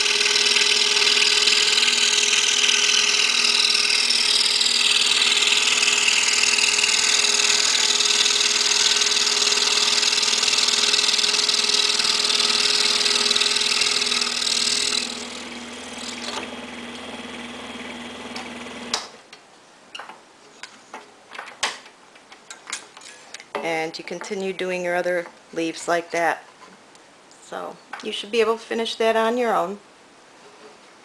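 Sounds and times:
scroll saw cutting wood: 0.0 - 19.1.

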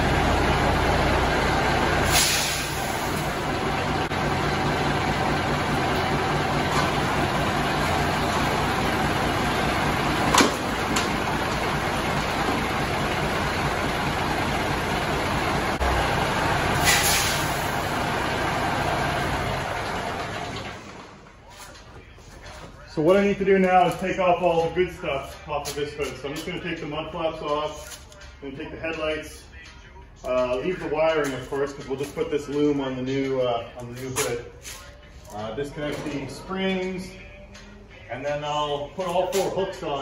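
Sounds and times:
diesel engine idling: 0.0 - 40.0
short air hisses: 2.1 - 3.2, 16.8 - 17.7.

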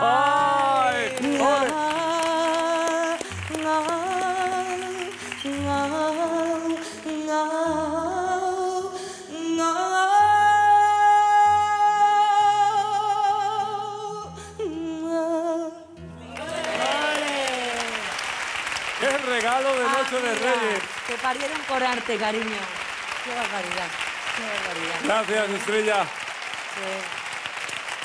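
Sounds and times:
woman singing with vibrato: 0.0 - 17.9.

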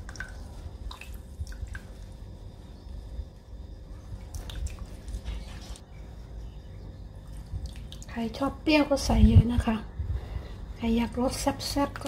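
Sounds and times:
juice dripping into broth: 0.0 - 5.4, 7.2 - 8.2
low steady rumble: 0.0 - 12.0.

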